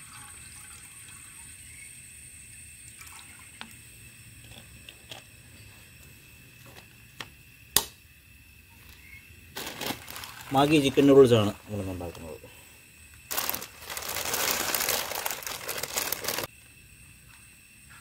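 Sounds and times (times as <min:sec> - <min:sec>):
water trickling into a pot: 0:00.0 - 0:05.6, 0:09.8 - 0:11.4
gas stove hiss: 0:00.3 - 0:18.0.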